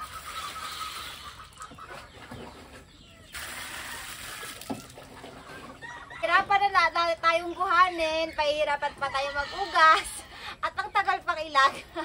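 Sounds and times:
chickens clucking: 0.0 - 12.0
water poured into plastic basin: 3.3 - 5.6.

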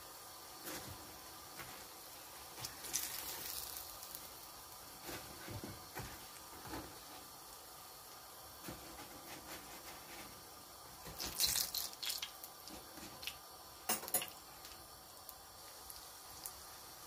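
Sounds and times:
dough sizzling in oil: 0.0 - 17.0.

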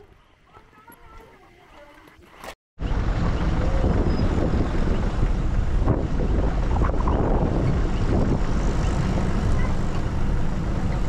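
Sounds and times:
strong wind buffeting microphone: 2.8 - 11.0.

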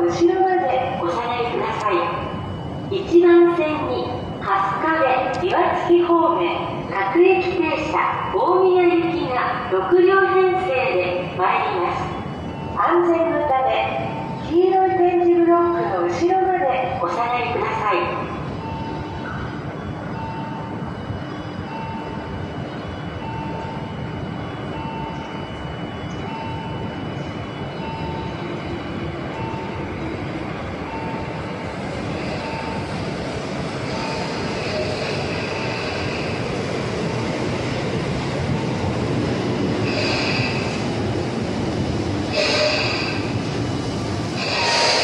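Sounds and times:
warning tone beeping: 0.5 - 33.1, 42.3 - 43.4
electric train running: 20.2 - 45.0
wheel and brake squeals: 42.3 - 43.2.

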